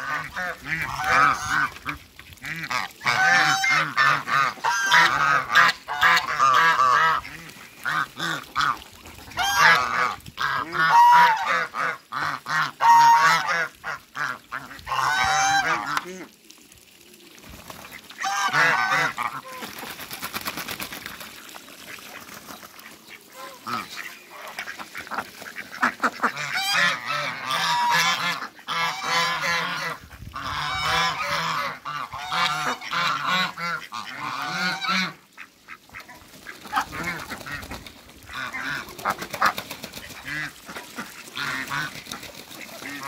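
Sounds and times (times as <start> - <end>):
geese honking: 0.0 - 1.9, 2.5 - 8.7, 9.4 - 16.0, 18.2 - 19.6, 23.0 - 35.5
ducks quacking: 0.0 - 16.3, 17.8 - 21.2, 21.8 - 43.0.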